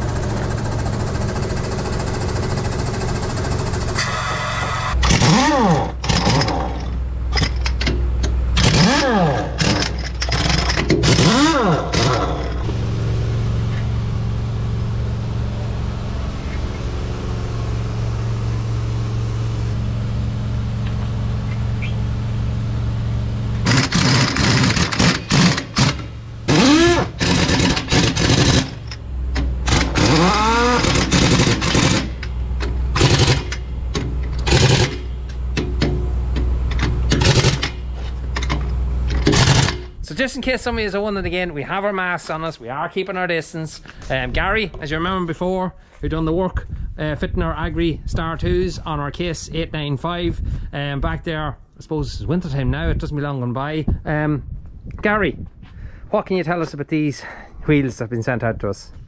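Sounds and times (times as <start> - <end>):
low engine-like hum: 0.0 - 59.0
pneumatic impact wrench bursts: 3.6 - 7.9, 8.6 - 12.6, 23.6 - 32.3, 32.9 - 35.9, 36.7 - 37.8, 38.4 - 39.9.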